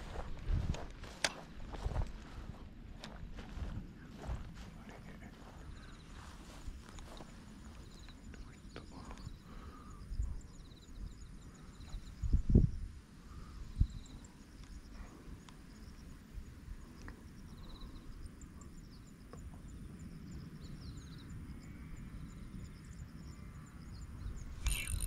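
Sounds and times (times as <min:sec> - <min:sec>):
low outdoor rumble: 0:00.0 - 0:10.6
insects trilling: 0:04.2 - 0:25.0.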